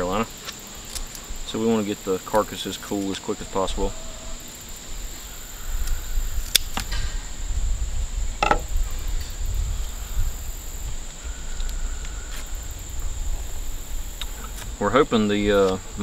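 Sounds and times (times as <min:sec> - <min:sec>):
insects droning: 0:00.0 - 0:16.0
short knock: 0:08.4 - 0:08.7.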